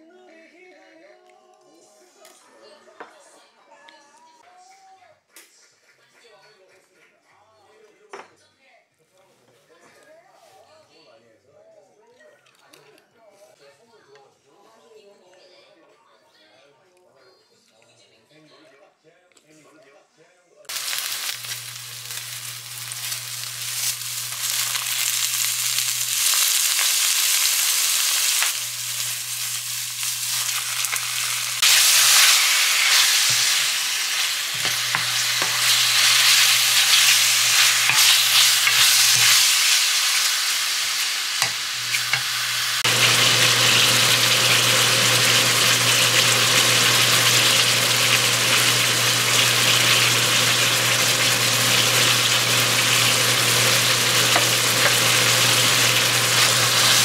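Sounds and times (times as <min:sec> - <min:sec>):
food sizzling in hot oil: 0:20.7 - 0:57.0.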